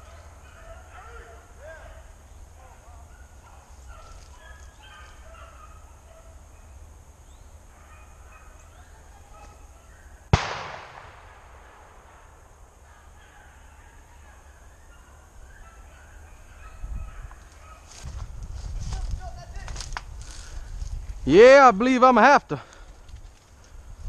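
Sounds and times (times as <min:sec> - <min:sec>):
hounds baying: 0:00.0 - 0:06.8, 0:07.6 - 0:10.1, 0:12.8 - 0:18.0
shotgun shot: 0:10.3 - 0:12.4.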